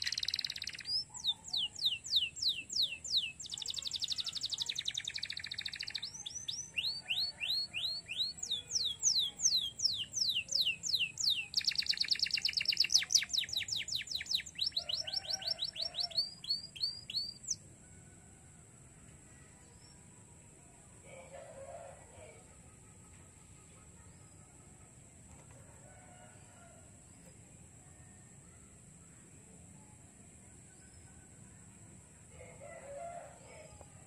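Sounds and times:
canary singing: 0.0 - 17.6.

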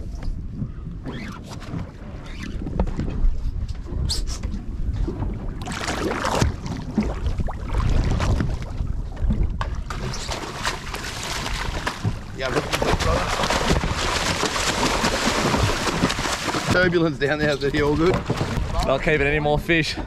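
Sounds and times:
wind buffeting microphone: 0.0 - 10.2
water slapping against boat hull: 0.1 - 19.8.

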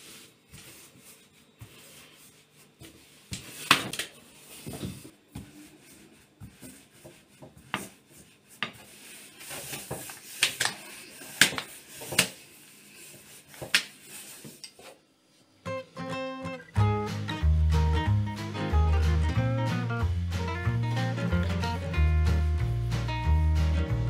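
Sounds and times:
rolling pin rolling dough: 0.0 - 15.0.

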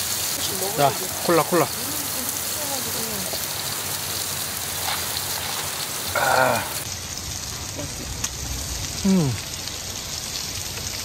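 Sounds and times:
meat sizzling on a grill: 0.0 - 11.0
short falling vocal sound: 6.2 - 6.8.

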